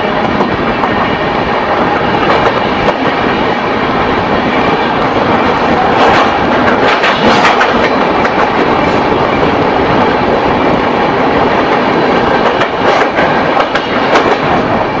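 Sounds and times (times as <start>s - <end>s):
train rushing at speed: 0.0s - 15.0s
wheels clattering over rail joints: 5.8s - 9.5s.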